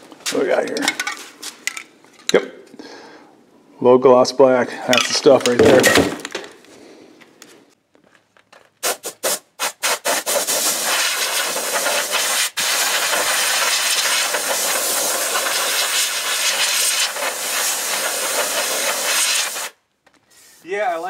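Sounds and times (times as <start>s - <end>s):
compressed air gun hissing: 8.8s - 20.6s.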